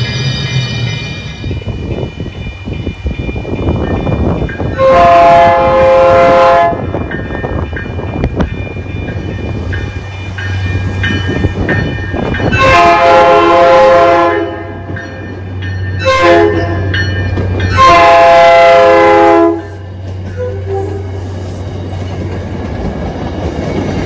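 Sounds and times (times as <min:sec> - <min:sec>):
train rumbling on rails: 0:00.0 - 0:24.0
train air horn blasts: 0:04.8 - 0:06.8, 0:12.6 - 0:14.8, 0:16.0 - 0:16.9, 0:17.8 - 0:19.8, 0:20.4 - 0:21.3.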